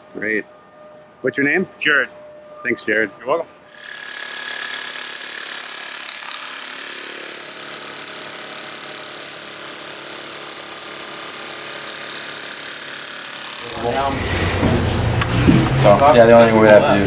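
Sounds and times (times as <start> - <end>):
rotary hammer hammering: 3.7 - 14.8.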